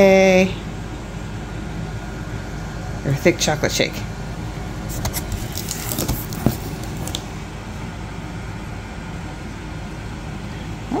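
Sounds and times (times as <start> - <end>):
low background hum: 0.0 - 11.0
paper and cardboard crinkling: 4.9 - 7.3.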